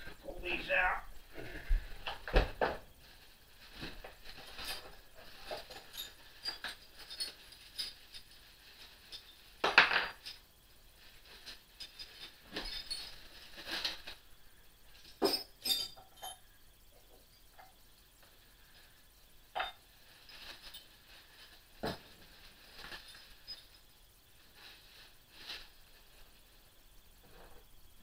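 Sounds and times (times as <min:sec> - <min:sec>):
plastic wrapping rustling: 0:00.0 - 0:14.3, 0:19.9 - 0:27.6
metal hand tools clinking: 0:04.4 - 0:08.4, 0:15.0 - 0:16.5.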